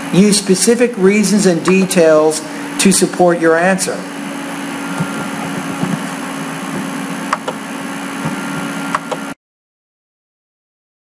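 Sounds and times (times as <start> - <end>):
room hiss and hum: 0.0 - 9.4
person narrating: 0.1 - 4.2.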